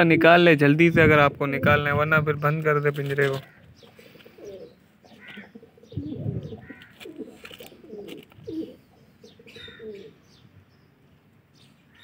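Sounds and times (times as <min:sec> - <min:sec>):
pigeons cooing: 0:03.4 - 0:10.3.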